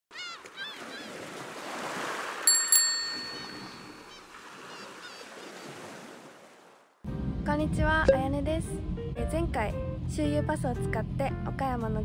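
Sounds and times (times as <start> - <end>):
surf washing in: 0.8 - 6.9
bright bell ringing: 2.5 - 4.1.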